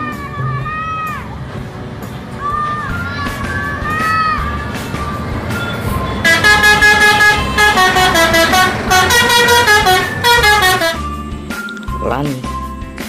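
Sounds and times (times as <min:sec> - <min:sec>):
musical air horn tune: 0:06.1 - 0:11.2.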